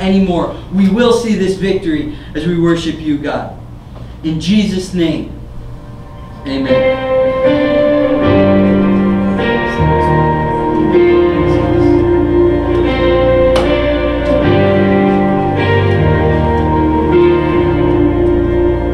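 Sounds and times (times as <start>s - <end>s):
deep bass: 5.4s - 18.9s
guitar chords: 5.4s - 18.9s.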